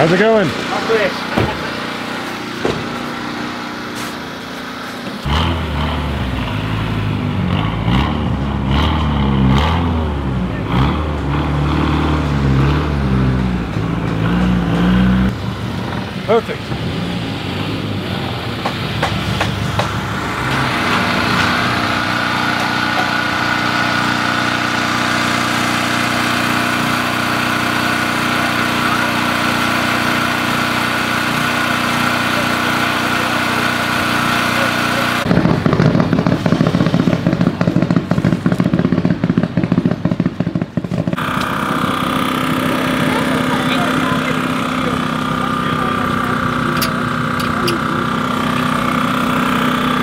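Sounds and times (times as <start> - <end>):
generator engine drone: 0.0 - 50.0
air impact wrench rattling: 18.6 - 39.9, 40.5 - 50.0.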